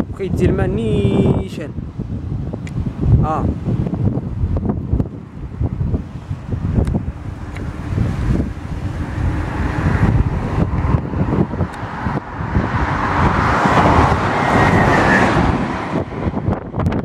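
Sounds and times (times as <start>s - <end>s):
wind buffeting microphone: 0.0s - 17.0s
vehicle passing by: 3.8s - 17.0s.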